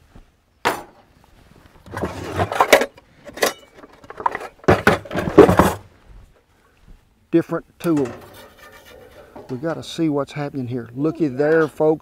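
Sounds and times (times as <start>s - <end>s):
cooking utensils clattering: 8.0s - 9.6s.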